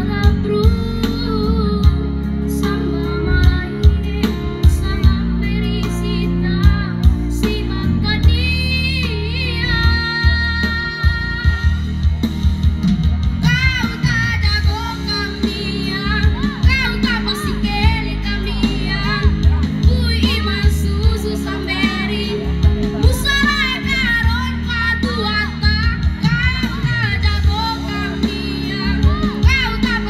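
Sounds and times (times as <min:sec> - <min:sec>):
person singing into a microphone: 0:00.0 - 0:12.2, 0:13.4 - 0:30.0
band accompaniment over loudspeakers: 0:00.0 - 0:30.0.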